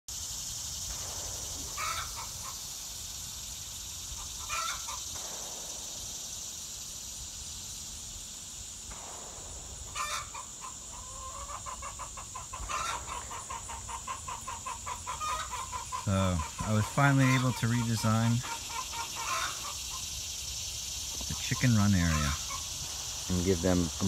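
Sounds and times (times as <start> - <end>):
high-pitched insect drone: 0.1 - 24.0
hens clucking: 1.0 - 2.7, 4.1 - 5.4, 9.9 - 24.0
hens squawking: 1.7 - 2.6, 4.2 - 5.1, 9.9 - 20.3, 21.1 - 22.8.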